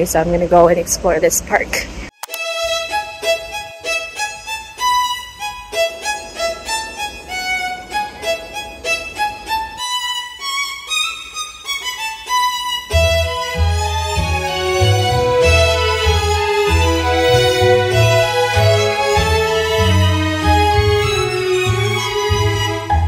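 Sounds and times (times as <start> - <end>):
quick pitched melody: 2.2 - 23.0
low bass part: 13.0 - 23.0.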